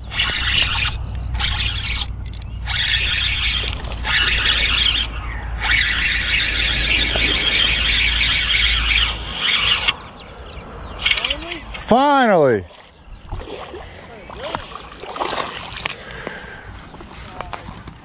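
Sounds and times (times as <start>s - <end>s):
wind rumble on microphone: 0.0s - 11.8s
insects buzzing in grass: 0.0s - 18.0s.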